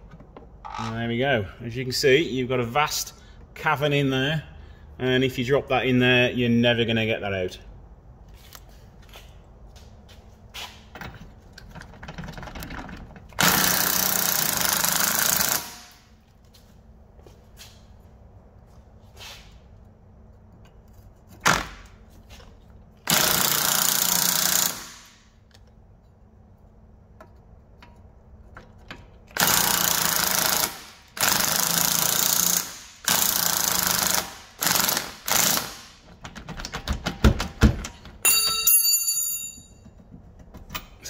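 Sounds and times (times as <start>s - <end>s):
impact wrench hammering: 13.4s - 16.0s, 23.1s - 25.3s, 29.3s - 36.2s
short metallic ring: 38.2s - 39.9s.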